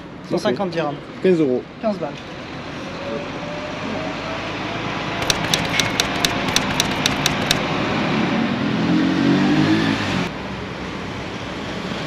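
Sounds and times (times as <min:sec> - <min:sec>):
sharp clicks: 0:05.2 - 0:07.7.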